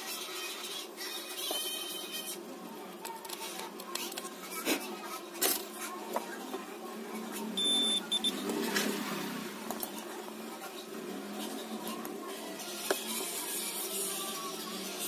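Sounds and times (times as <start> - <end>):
multimeter continuity beep: 7.6 - 8.4.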